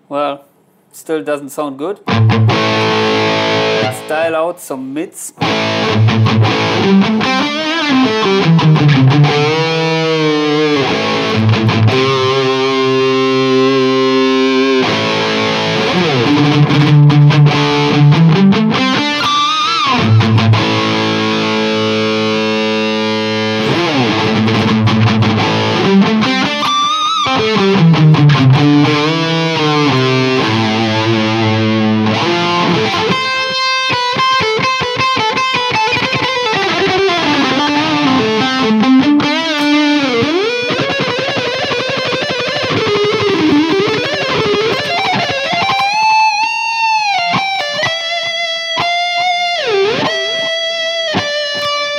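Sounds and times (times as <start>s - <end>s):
distorted electric guitar: 2.0s - 51.9s.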